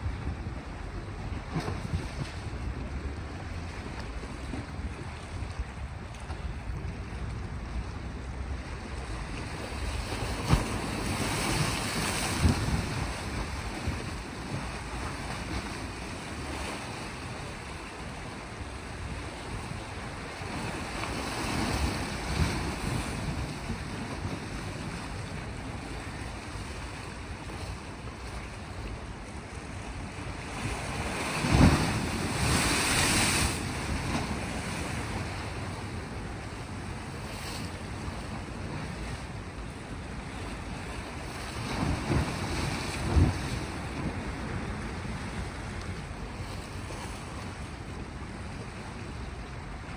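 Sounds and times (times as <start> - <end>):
waves washing against rocks: 7.2 - 49.9
wind thumps on microphone: 10.3 - 14.7.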